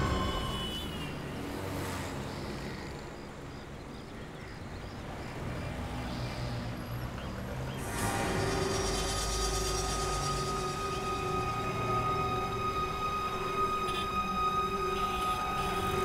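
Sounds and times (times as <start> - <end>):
auto-rickshaws and motorbikes passing: 0.0 - 16.0
music: 7.8 - 16.0.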